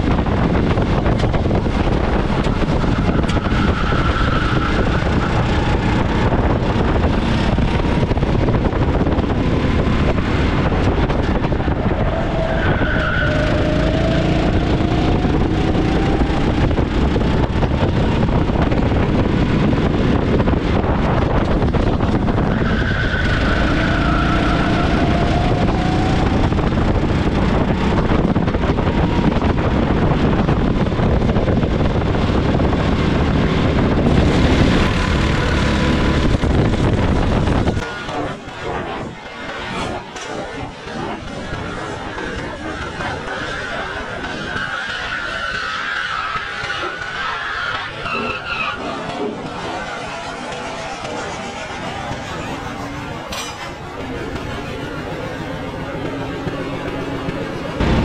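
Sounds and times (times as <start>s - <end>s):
kart engine running hard: 0.0s - 58.0s
steady rushing noise: 0.0s - 58.0s.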